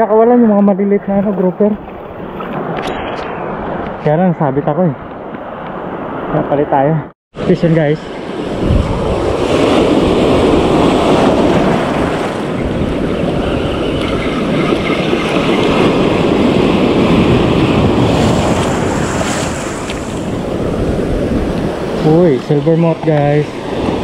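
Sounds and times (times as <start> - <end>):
surf breaking over reef: 7.4 - 24.0
wind buffeting microphone: 7.4 - 24.0.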